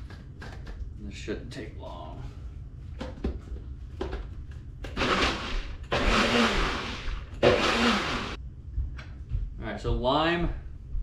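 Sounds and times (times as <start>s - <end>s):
blender motor running: 4.9s - 8.4s.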